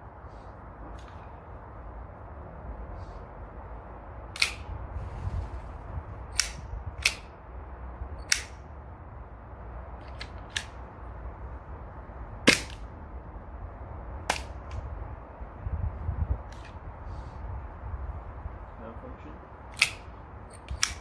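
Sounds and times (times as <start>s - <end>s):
wind rumble on microphone: 0.0s - 21.0s
air pistol shots: 4.3s - 4.7s, 12.4s - 12.8s, 19.7s - 21.0s.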